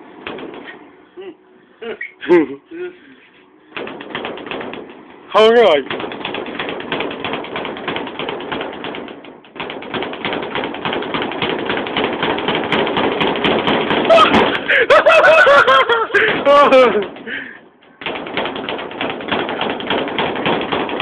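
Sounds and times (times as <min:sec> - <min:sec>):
speed bag rattling: 0:03.8 - 0:14.7, 0:16.2 - 0:21.0
person shouting: 0:14.1 - 0:14.4.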